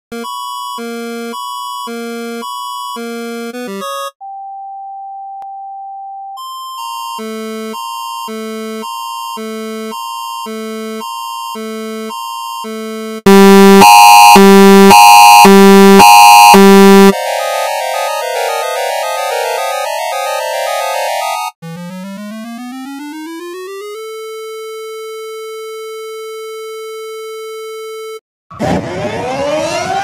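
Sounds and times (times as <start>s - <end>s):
alternating alert beeps: 13.3s - 17.2s
warbling electronic tones: 13.3s - 17.2s
harsh buzzing alarm blasts: 13.3s - 18.9s
steady synthesized tone: 13.3s - 21.3s.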